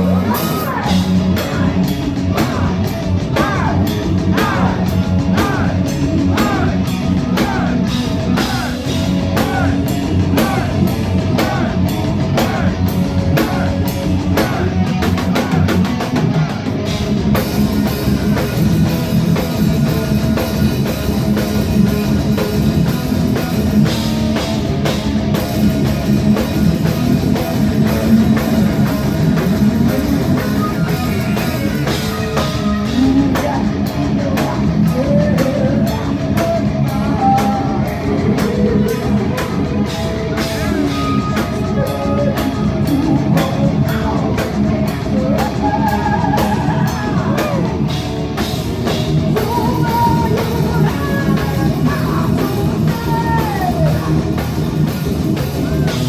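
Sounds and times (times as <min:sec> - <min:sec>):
heavy metal band playing live: 0:00.0 - 0:56.0
woman singing: 0:49.3 - 0:54.2.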